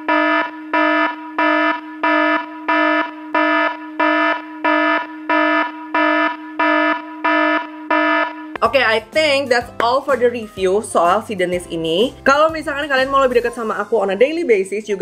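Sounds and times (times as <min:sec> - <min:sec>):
electronic beeping: 0:00.0 - 0:08.6
buzzing tone: 0:00.0 - 0:08.8.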